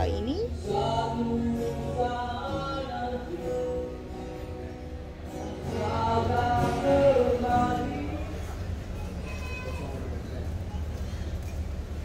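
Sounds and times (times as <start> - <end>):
singer holding long notes: 5.3 - 8.8.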